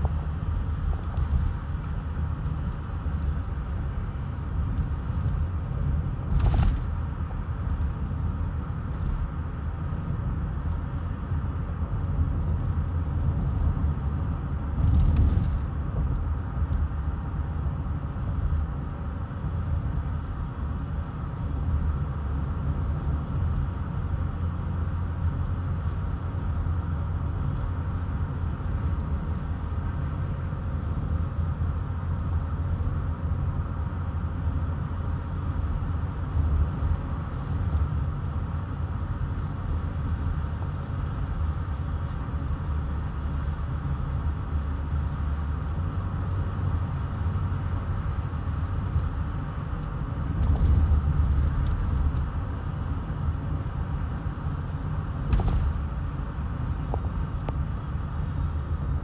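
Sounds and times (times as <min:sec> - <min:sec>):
car road and tyre noise: 0:00.0 - 0:59.0.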